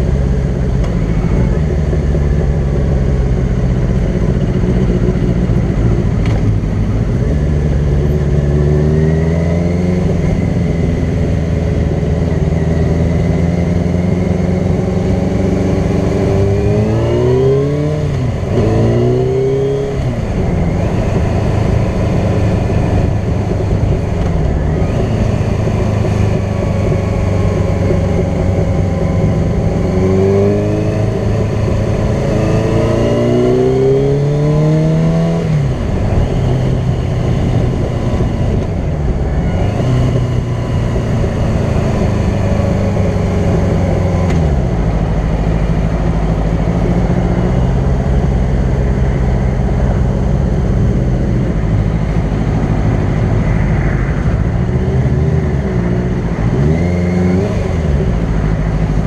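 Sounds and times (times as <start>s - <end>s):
motorcycle engine revving: 0.0s - 59.0s
wind and road rush: 0.0s - 59.0s.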